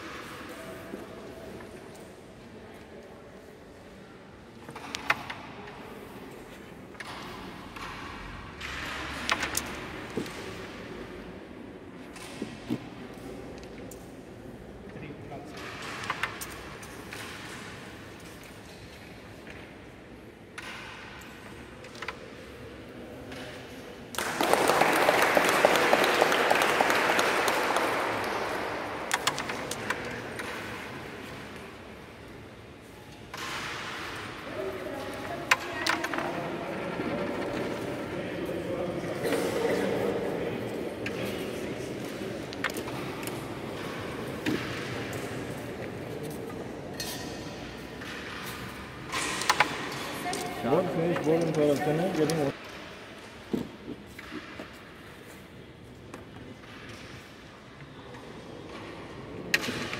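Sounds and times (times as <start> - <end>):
spectators applauding: 24.1 - 28.8.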